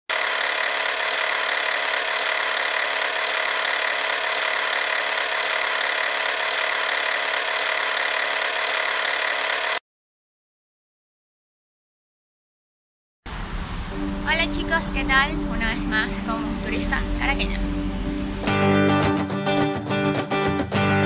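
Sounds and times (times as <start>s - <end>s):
film projector whirring: 0.1s - 9.8s.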